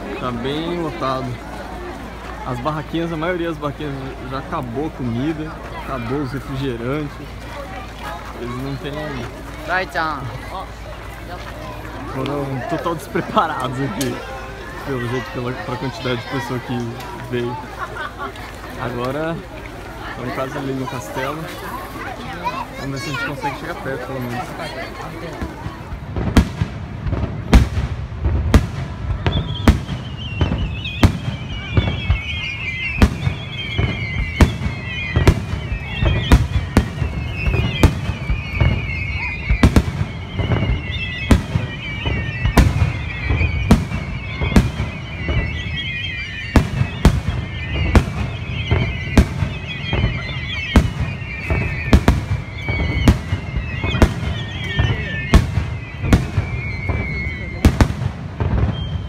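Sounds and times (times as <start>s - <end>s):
high warbling whistle: 29.2s - 59.0s.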